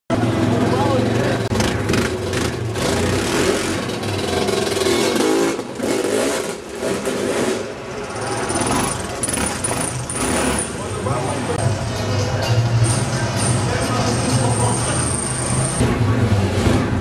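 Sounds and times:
dirt bike engine revving: 0.1 - 11.1
quad bike engine revving: 0.1 - 11.4, 14.3 - 17.0.

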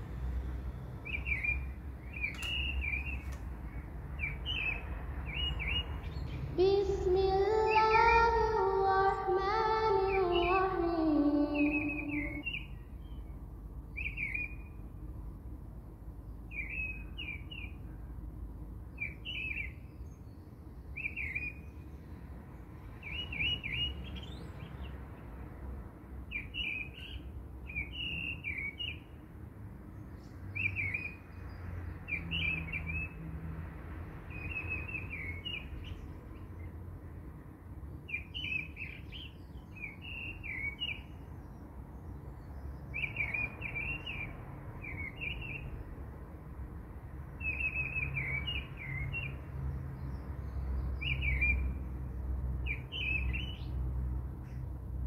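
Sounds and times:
bird chirping: 1.0 - 13.3, 13.9 - 14.9, 16.3 - 17.9, 18.9 - 21.9, 22.8 - 25.0, 26.3 - 29.2, 30.0 - 33.2, 34.3 - 36.7, 38.0 - 45.9, 47.4 - 51.8, 52.6 - 53.8
high sung melody: 6.5 - 12.6.

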